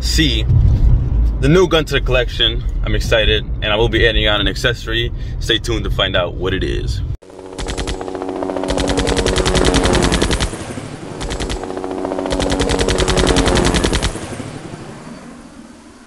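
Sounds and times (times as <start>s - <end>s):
machine-gun fire: 7.6s - 8.1s, 8.7s - 14.4s.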